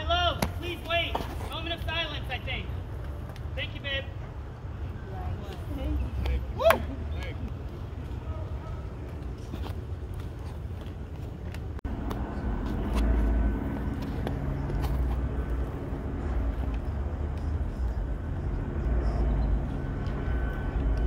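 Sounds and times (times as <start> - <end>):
outdoor background noise: 0.0 - 21.0
low engine drone: 11.8 - 21.0.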